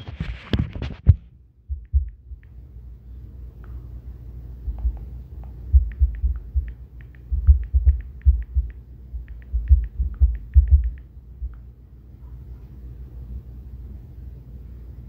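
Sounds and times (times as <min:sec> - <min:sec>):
low thumps: 0:01.0 - 0:02.5, 0:04.7 - 0:11.6
light sharp clicks: 0:04.7 - 0:11.6.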